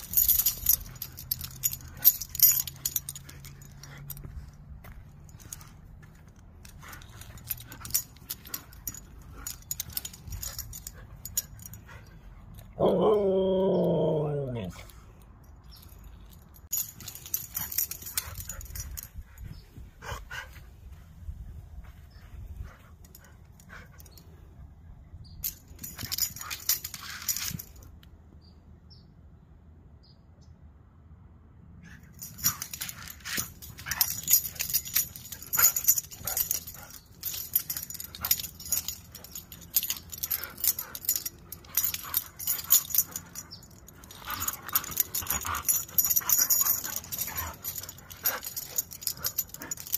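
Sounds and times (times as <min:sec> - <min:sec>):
dog vocalisations: 0:12.8 - 0:14.8.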